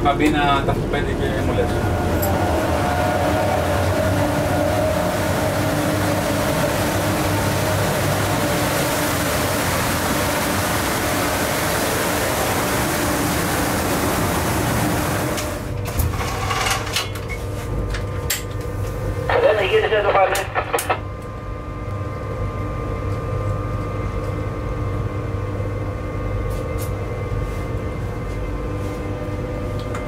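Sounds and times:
locomotive equipment rushing hum: 0.0 - 15.9.

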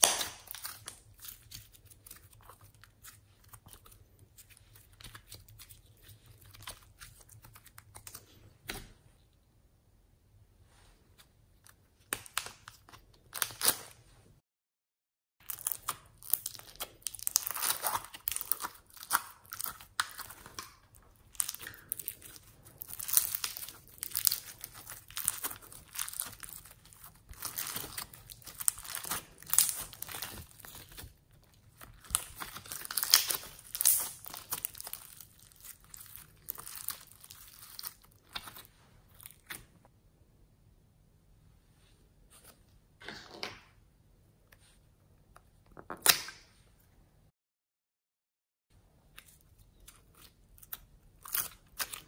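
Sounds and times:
foam slime crunching and crackling: 0.0 - 3.7, 15.4 - 39.6.

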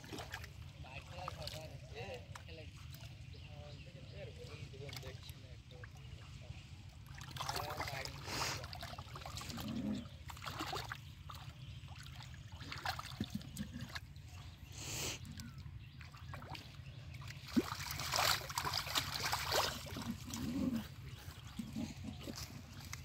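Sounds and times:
hands splashing in muddy water: 10.3 - 14.1, 15.2 - 23.0.

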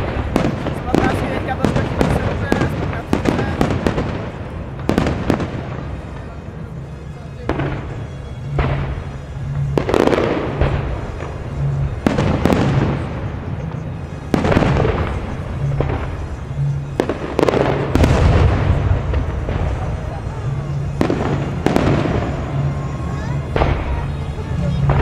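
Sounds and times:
fireworks bursting: 0.0 - 25.0
music playing: 0.0 - 25.0.

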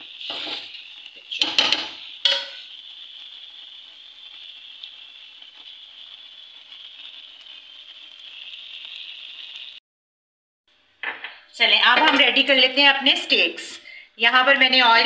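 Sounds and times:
hot pan sizzling: 0.0 - 9.8
sharp metal clank: 1.4 - 2.6.

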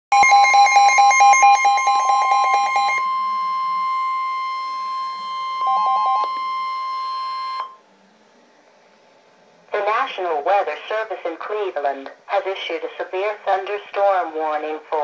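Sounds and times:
fast beeping alarm: 0.1 - 7.8.

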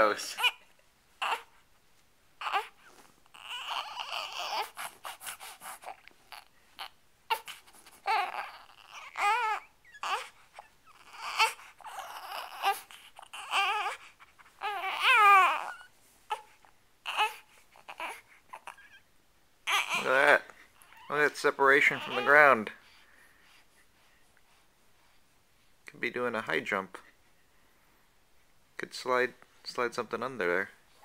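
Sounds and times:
infant crying: 0.1 - 1.6, 2.4 - 19.0, 19.6 - 22.6.

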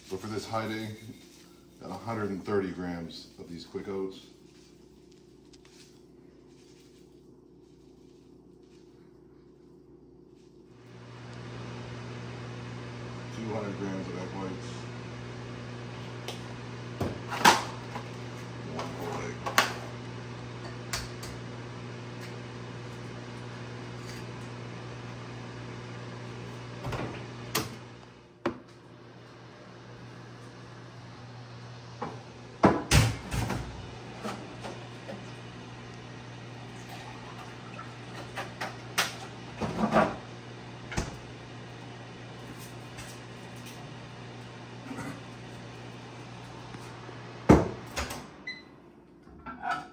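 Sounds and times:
steady low hum: 0.0 - 49.3
fridge doors opening and shutting: 26.6 - 28.0, 31.9 - 35.9, 36.5 - 41.4, 47.4 - 49.9.

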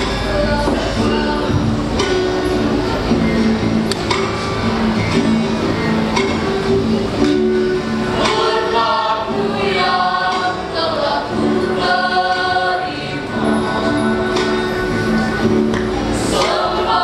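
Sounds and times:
youth choir singing: 0.0 - 3.4, 7.9 - 17.0
acoustic guitar: 0.0 - 17.0.

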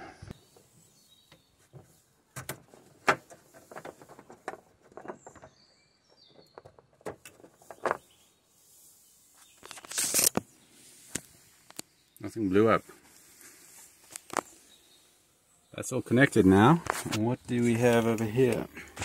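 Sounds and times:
cables rustling: 1.6 - 5.6, 8.9 - 14.8.

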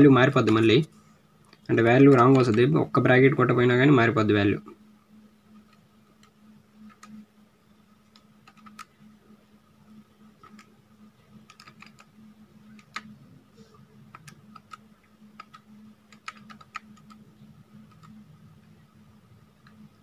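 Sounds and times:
steady low hum: 0.0 - 20.0
calculator keys clicking: 5.6 - 7.2, 8.1 - 8.9, 10.4 - 10.7, 11.4 - 12.1, 12.7 - 13.2, 14.1 - 14.8, 15.4 - 18.2.

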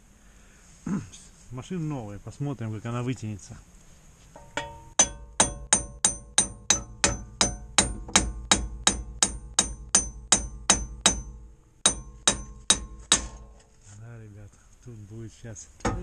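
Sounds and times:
hammer striking steel wheel hub: 4.4 - 13.7.

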